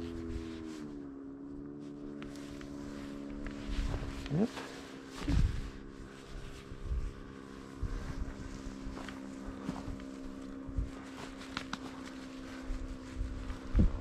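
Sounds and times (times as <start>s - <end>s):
motor hum: 0.0s - 14.0s
wind buffeting microphone: 5.2s - 11.4s, 12.4s - 14.0s.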